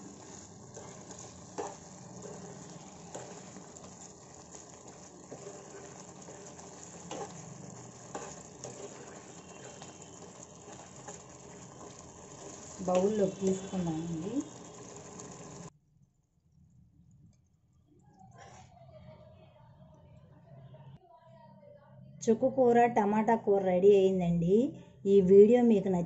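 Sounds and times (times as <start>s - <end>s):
curry sizzling and bubbling: 0.0s - 15.7s.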